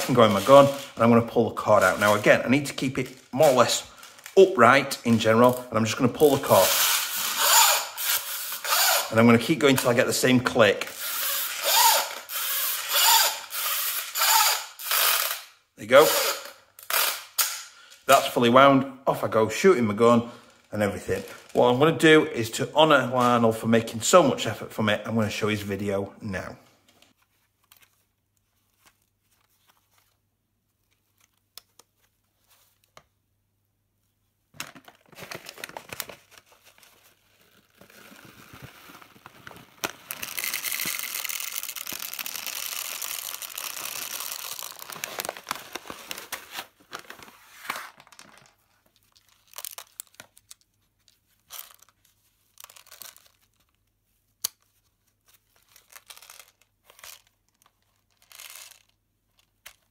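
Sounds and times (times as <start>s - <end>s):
plastic pellets pouring: 0.0s - 7.7s, 37.8s - 46.2s
plastic bag crinkling: 0.0s - 10.0s, 20.2s - 22.0s, 34.6s - 53.9s, 55.2s - 59.9s
handling rustles and clicks: 26.9s - 33.1s, 34.6s - 59.9s.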